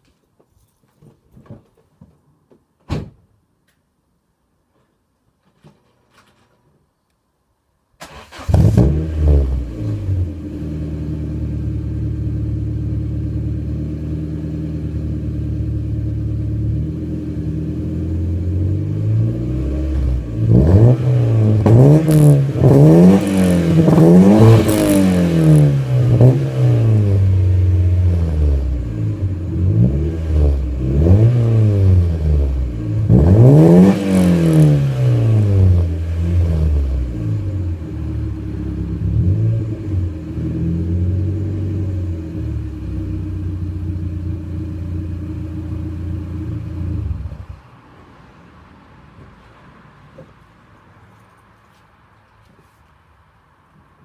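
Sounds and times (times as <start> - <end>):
car engine idling and revving: 8.1 - 47.7.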